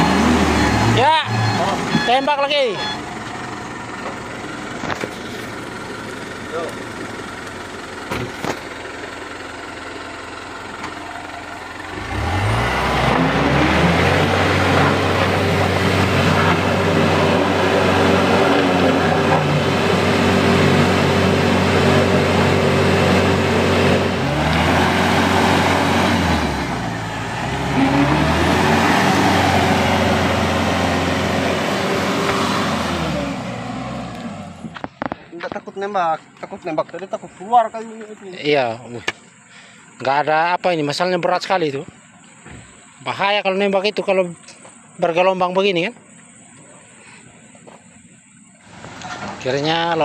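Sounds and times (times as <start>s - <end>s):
truck diesel engine revving: 0.0s - 34.8s.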